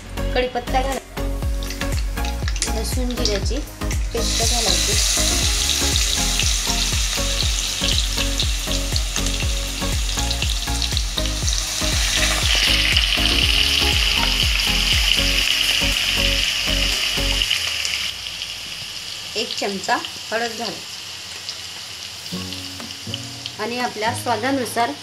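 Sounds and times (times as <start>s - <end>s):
background music: 0.0s - 18.0s, 22.3s - 25.0s
paste sizzling in hot oil: 1.5s - 25.0s.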